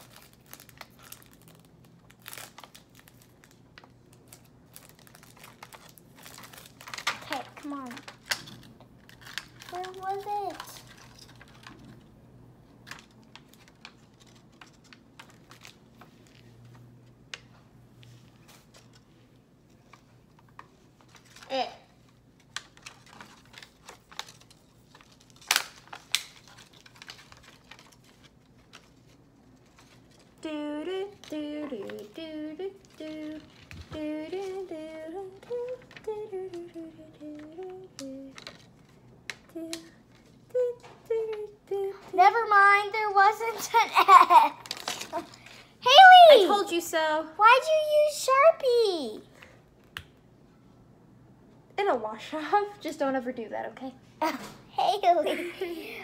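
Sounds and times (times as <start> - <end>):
packaging crinkling: 0.0 - 12.1, 12.8 - 16.8, 19.8 - 40.4, 44.0 - 46.2.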